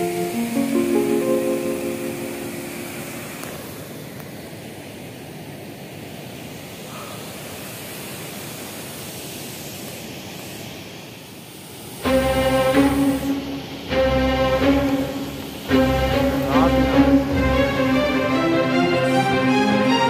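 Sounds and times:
background music: 0.0 - 3.6, 12.0 - 20.0.

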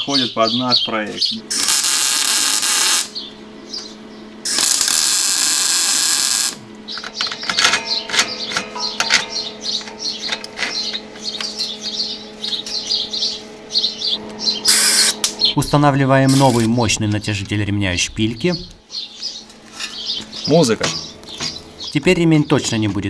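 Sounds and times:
birds chirping: 0.0 - 1.6, 3.0 - 4.6, 6.6 - 23.0
steady hum: 0.0 - 23.0
arc welding crackling: 1.4 - 3.3, 4.4 - 7.7, 14.2 - 16.6.

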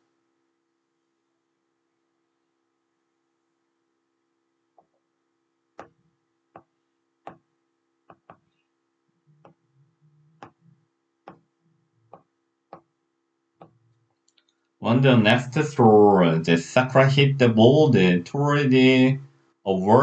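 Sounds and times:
taps on a tablet screen: 6.6 - 8.5, 11.2 - 11.5.

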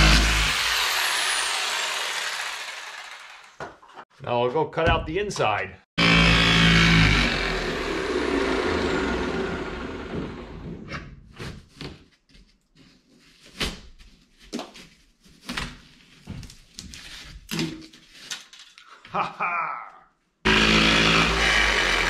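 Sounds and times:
power tool whine winding down: 0.0 - 3.6, 6.0 - 10.6, 20.5 - 22.0.

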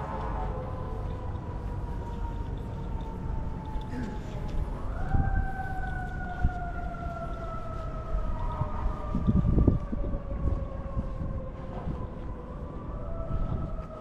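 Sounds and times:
siren wailing: 0.0 - 14.0.

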